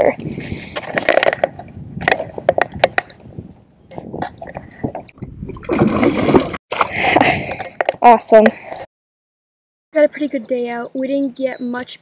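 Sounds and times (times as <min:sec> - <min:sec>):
fish splashing water: 0:04.4 - 0:06.9.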